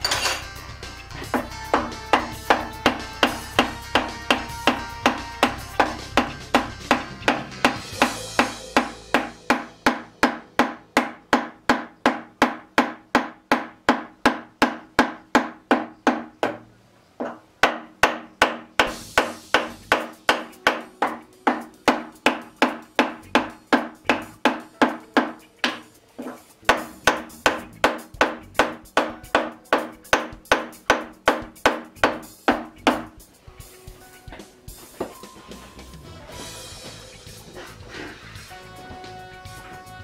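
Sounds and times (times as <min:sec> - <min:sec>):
mallet tapping on metal: 0:01.3 - 0:16.6, 0:17.2 - 0:33.2.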